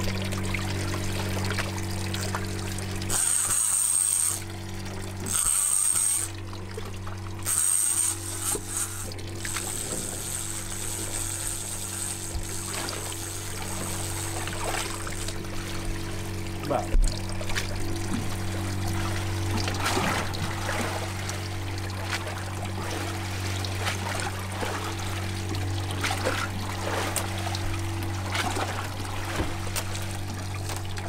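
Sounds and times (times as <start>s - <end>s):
outboard engine humming: 0.0s - 31.0s
water around boat: 0.0s - 31.0s
fishing reel drag whirring: 1.8s - 6.7s, 7.3s - 16.5s.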